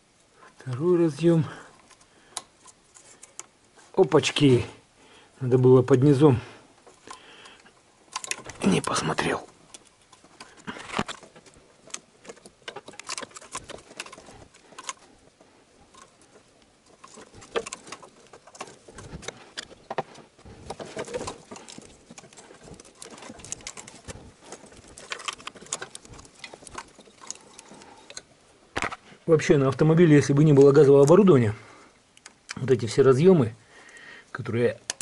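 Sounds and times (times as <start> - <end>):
rustling of wiring harness: 0.0 - 35.0.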